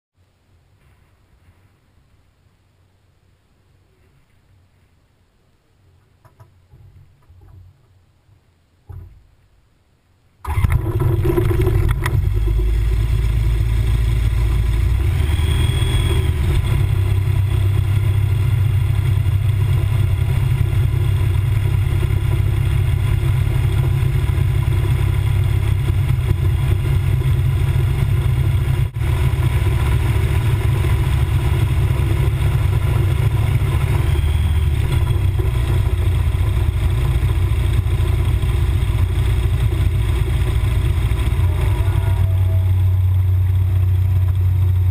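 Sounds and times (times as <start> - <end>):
propeller engine running loud: 10.5 - 44.9.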